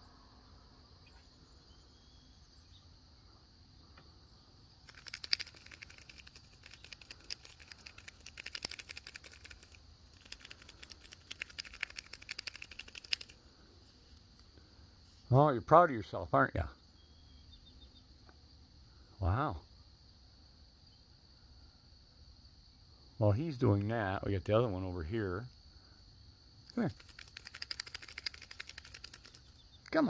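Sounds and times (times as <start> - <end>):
high insect trill: 0.0 - 30.0
chipmunk claws scrabbling: 4.8 - 13.4, 26.7 - 30.0.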